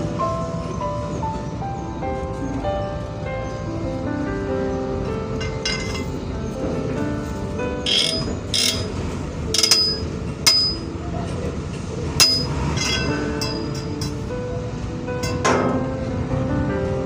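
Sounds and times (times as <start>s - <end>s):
metal bar clanking on wheel rim: 5.4s - 6.2s, 7.8s - 10.9s, 12.2s - 14.3s, 15.2s - 15.9s
metal rasping scrapes: 7.9s - 9.0s.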